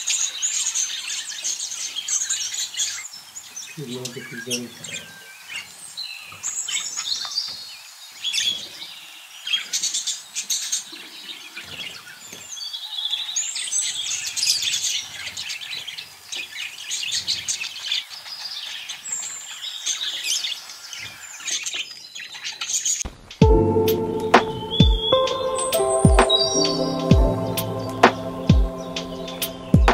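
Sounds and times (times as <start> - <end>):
budgerigars chattering: 3.7 - 5.6.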